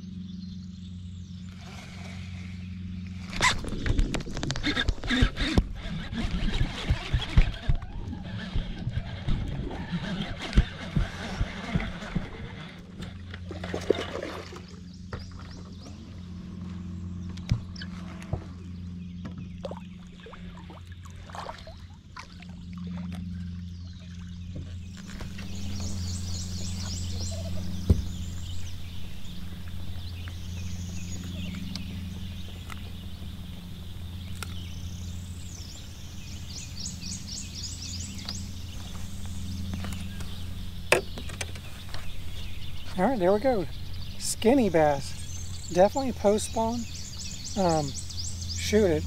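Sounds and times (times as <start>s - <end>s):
steady low hum: 0.0s - 49.0s
trilling bird calls: 23.3s - 49.0s.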